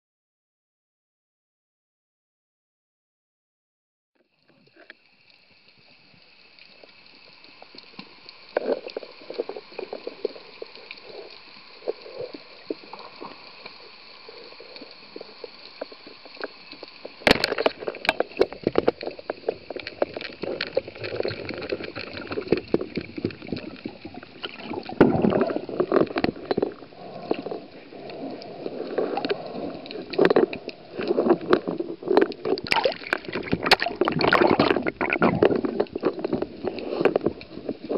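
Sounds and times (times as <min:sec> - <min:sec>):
water swishing and gurgling underwater: 0:04.3 - 0:37.9
underwater clicks and knocks: 0:15.4 - 0:27.6, 0:29.0 - 0:37.9.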